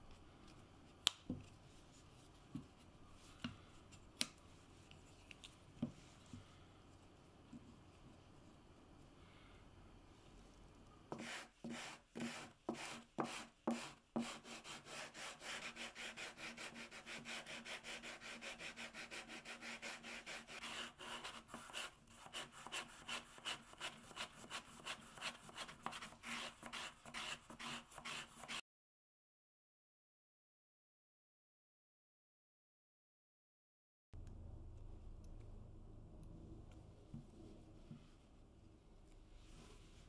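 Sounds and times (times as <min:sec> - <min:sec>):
sandpaper rubbing on wood: 0:11.2 - 0:28.6.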